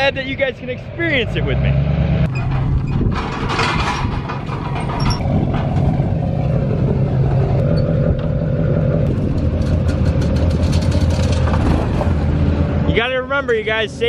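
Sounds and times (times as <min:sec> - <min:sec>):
atv engine running: 0:05.2 - 0:14.0.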